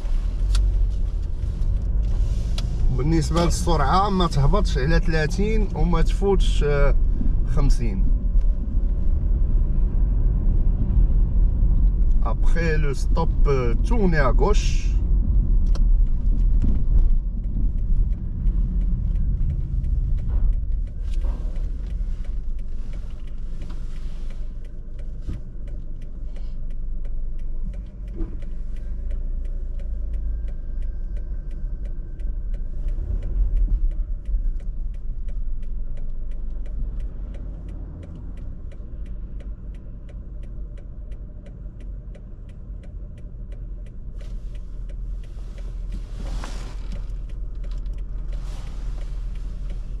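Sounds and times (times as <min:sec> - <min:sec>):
road and engine rumble: 0:00.0 - 0:50.0
turn signal ticking: 0:00.0 - 0:50.0.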